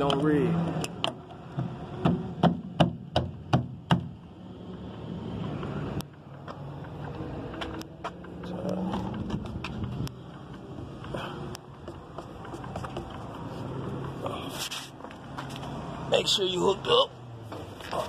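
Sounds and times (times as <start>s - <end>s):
sharp knocks: 1.6s - 4.2s
scattered clicks: 6.0s - 11.7s.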